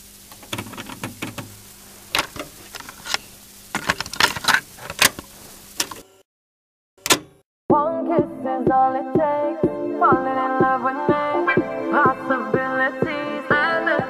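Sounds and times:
steady hiss and hum: 0:00.0 - 0:06.2
clicks and knocks: 0:00.3 - 0:01.6, 0:07.0 - 0:07.4.

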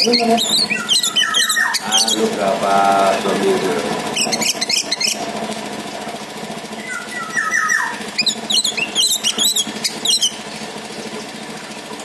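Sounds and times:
high chattering chirps: 0:00.0 - 0:05.3, 0:06.7 - 0:11.1
thrush singing: 0:00.0 - 0:05.3, 0:06.7 - 0:10.7.

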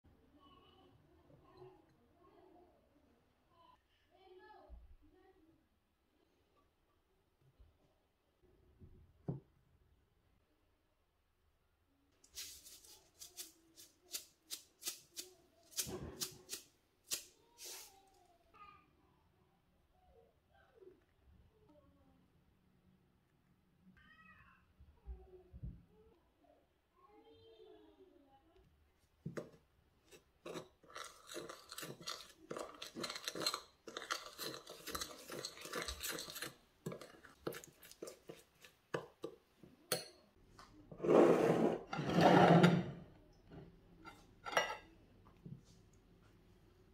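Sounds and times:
spice shaker shakes: 0:12.2 - 0:17.9, 0:30.5 - 0:38.8
spoon scraping ceramic bowl: 0:29.3 - 0:40.2, 0:41.0 - 0:42.8.

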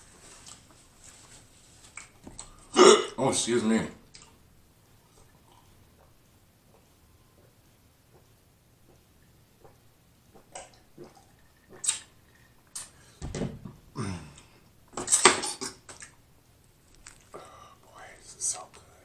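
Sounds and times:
person exhaling: 0:14.0 - 0:14.6.

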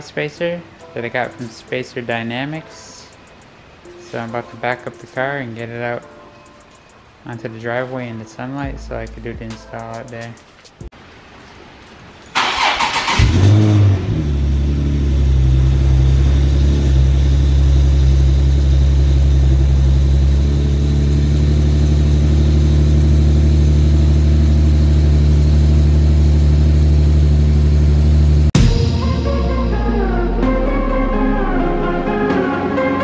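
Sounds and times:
car engine starting and idling: 0:12.3 - 0:33.0.

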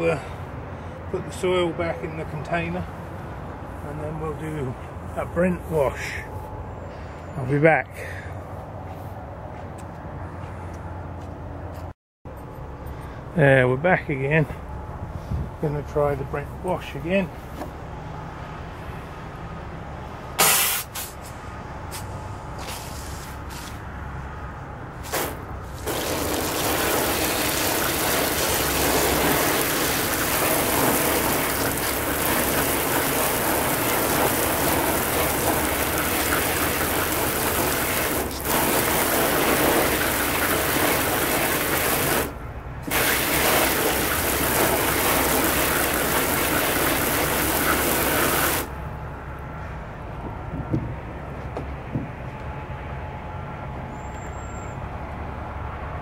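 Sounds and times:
hose nozzle spraying water: 0:20.4 - 0:21.2, 0:25.1 - 0:48.8.

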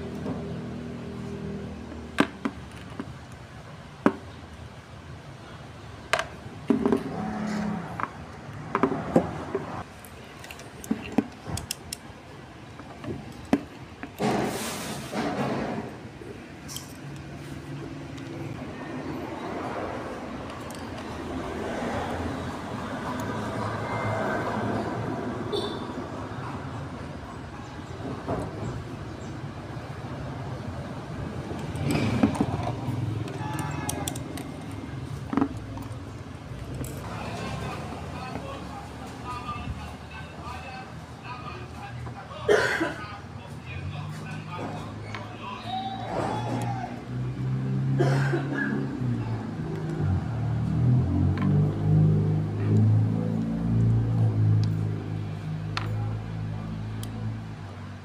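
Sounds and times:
traffic engine rumble: 0:00.0 - 0:58.0
hands handling objects clicking: 0:10.0 - 0:12.1, 0:31.5 - 0:37.1.

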